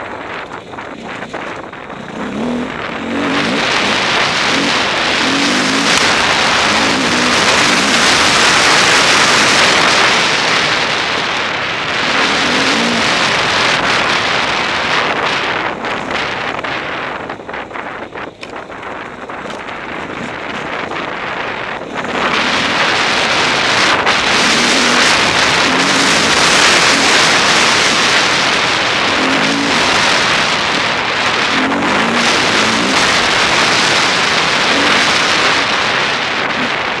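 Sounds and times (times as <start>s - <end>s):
wind rushing over microphone: 0.0s - 37.0s
dirt bike engine revving: 0.2s - 37.0s.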